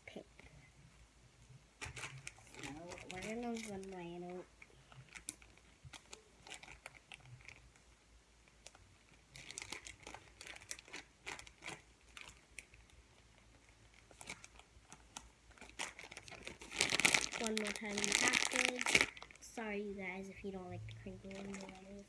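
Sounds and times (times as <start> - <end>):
plastic packaging crinkling: 1.8 - 7.8, 8.6 - 12.9, 13.5 - 19.7, 21.0 - 22.0.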